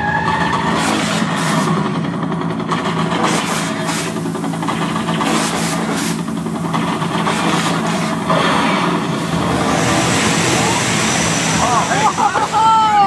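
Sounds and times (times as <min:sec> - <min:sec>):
engine hum: 0:00.0 - 0:13.0
water jets hissing: 0:03.3 - 0:13.0.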